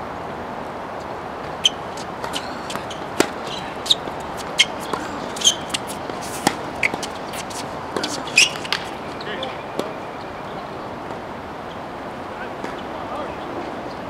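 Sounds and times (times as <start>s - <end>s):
steady background hiss: 0.0s - 14.0s
tennis balls bouncing and hit: 1.4s - 10.0s, 12.6s - 12.9s.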